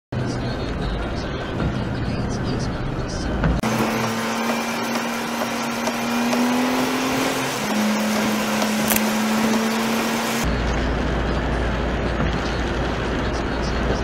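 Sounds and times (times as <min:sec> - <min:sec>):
lorry engine drone: 0:00.2 - 0:14.0
tyres hissing on wet road: 0:03.6 - 0:10.4.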